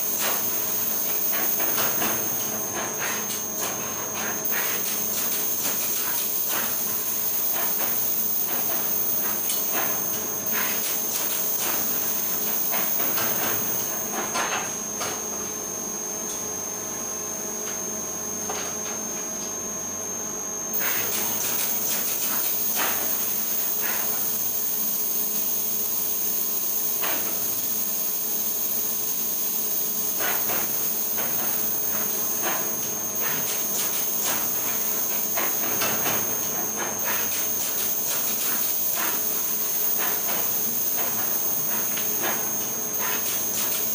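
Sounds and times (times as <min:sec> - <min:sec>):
printing machine whine and hum: 0:00.0 - 0:43.9
hiss: 0:37.0 - 0:42.4.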